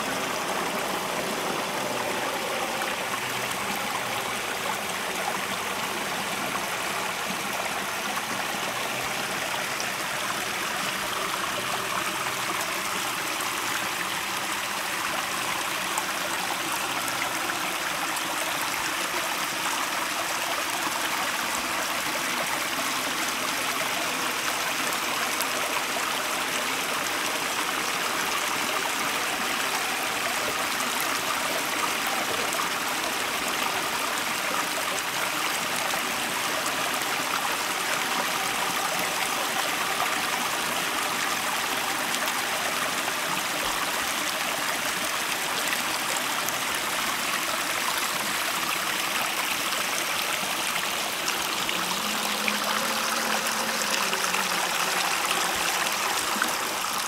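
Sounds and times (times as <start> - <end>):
waterfall splashing over rocks: 0.0 - 57.0.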